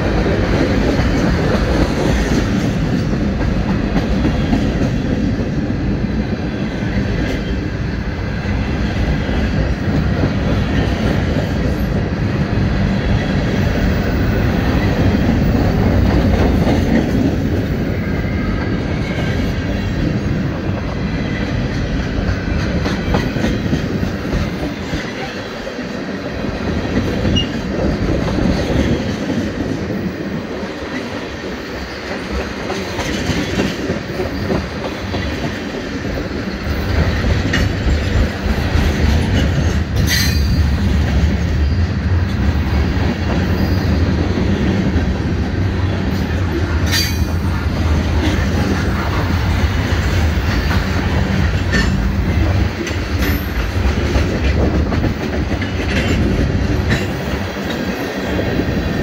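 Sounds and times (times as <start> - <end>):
freight train rolling past: 0.0 - 59.0
wheels clacking over rail joints: 46.1 - 58.4.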